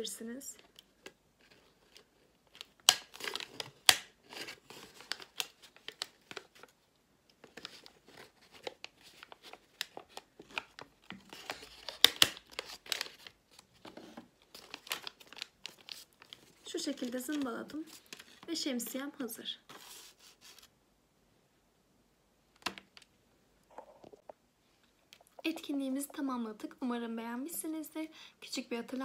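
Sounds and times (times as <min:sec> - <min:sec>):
paper rustling and crinkling: 0:00.6 - 0:18.5, 0:19.7 - 0:20.7.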